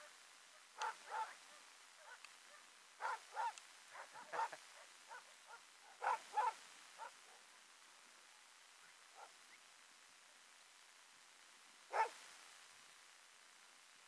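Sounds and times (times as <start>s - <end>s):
sled dogs barking: 0.0s - 7.7s, 9.1s - 9.5s, 11.9s - 12.2s.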